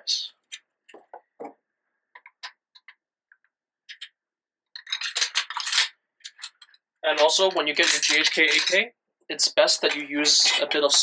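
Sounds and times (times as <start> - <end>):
metal parts clicking and knocking: 3.9 - 4.1, 4.7 - 8.8.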